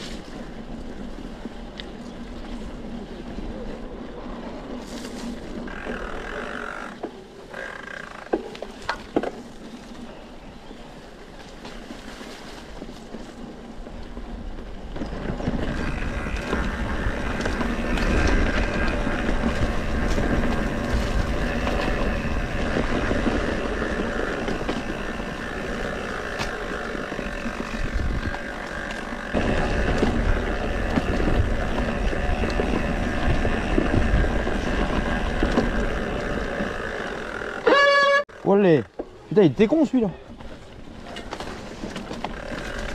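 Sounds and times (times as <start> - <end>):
bike rattling over rough ground: 0.0 - 42.9
wind buffeting microphone: 12.6 - 37.3.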